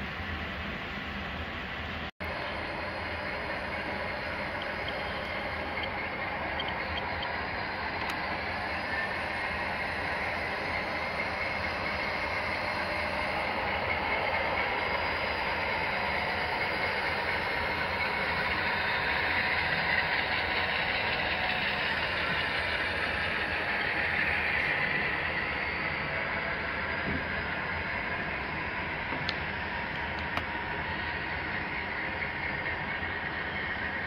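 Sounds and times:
model train motors whirring: 2.2 - 34.0.

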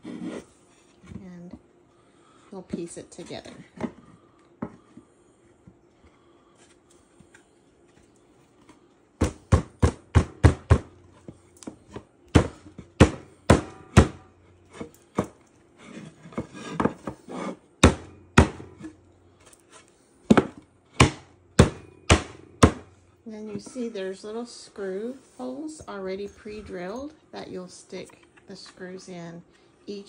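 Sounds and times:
wooden boards knocking: 20.3 - 22.9.

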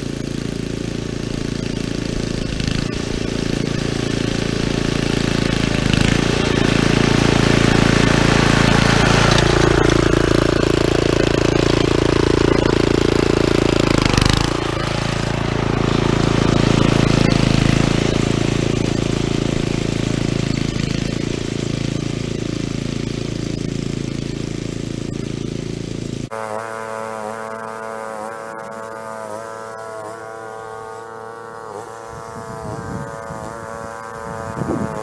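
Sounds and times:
lawn mower engine running: 0.0 - 35.0.

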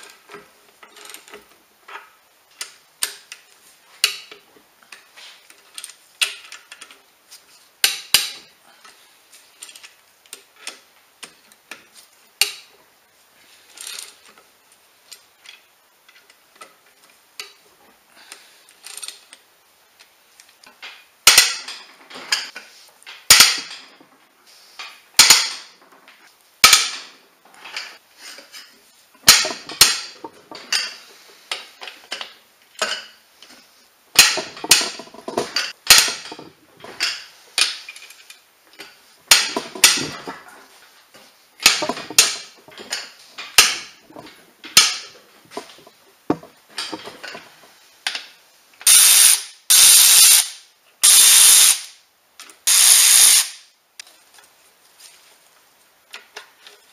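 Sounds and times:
sharp metallic cracks and clanks: 20.7 - 24.0, 24.8 - 25.9, 26.6 - 28.0, 29.2 - 33.2, 34.1 - 40.4, 41.6 - 45.8, 46.7 - 52.0, 52.7 - 53.8.

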